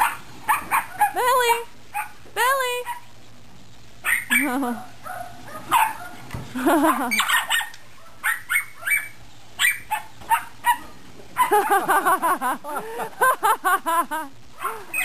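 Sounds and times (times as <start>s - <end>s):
dogs barking: 0.0s - 1.2s, 1.9s - 2.2s, 4.0s - 12.2s, 14.5s - 15.0s.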